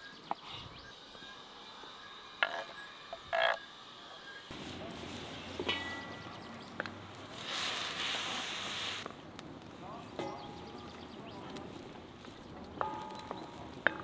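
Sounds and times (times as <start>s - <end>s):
food sizzling in a wok: 7.3s - 9.0s.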